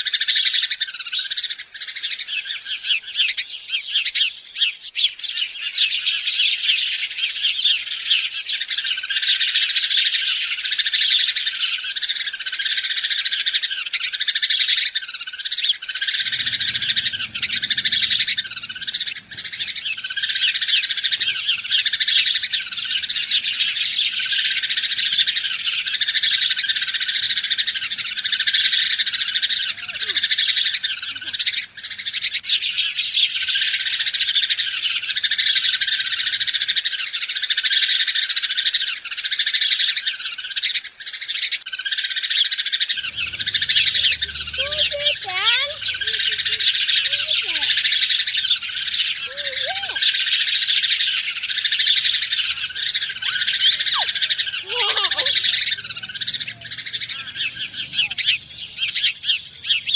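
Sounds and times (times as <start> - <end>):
birds chirping: 0.0 - 59.9
repeating bird call: 15.8 - 36.6, 42.8 - 59.9.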